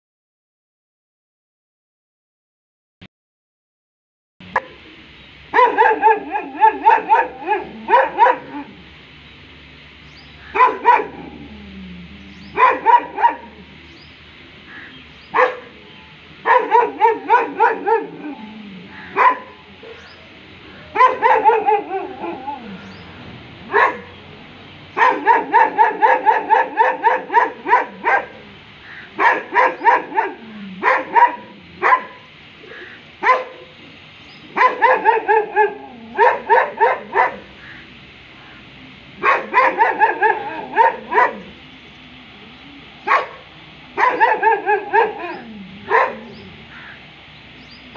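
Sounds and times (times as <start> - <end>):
dog barking: 4.5 - 4.8, 5.5 - 8.8, 10.4 - 11.4, 12.5 - 13.6, 15.3 - 15.8, 16.4 - 20.1, 20.9 - 22.9, 23.7 - 24.2, 24.9 - 33.7, 34.5 - 37.8, 39.2 - 41.6, 43.0 - 47.0.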